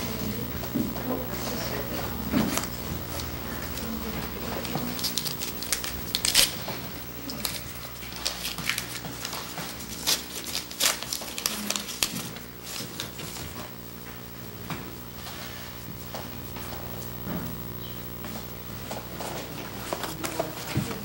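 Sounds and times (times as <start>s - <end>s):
wrapper tearing and crinkling: 4.8s - 13.2s.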